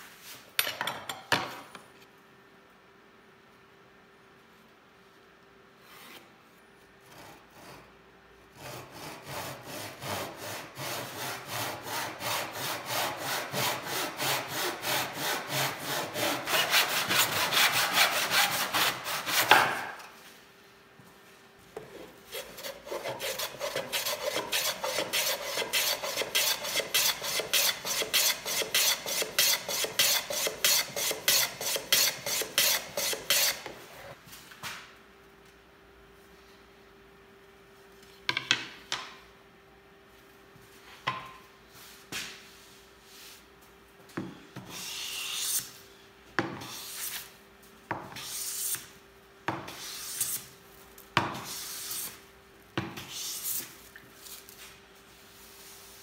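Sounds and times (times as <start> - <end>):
hand saw cutting wood: 8.6 - 20.0, 22.3 - 33.8.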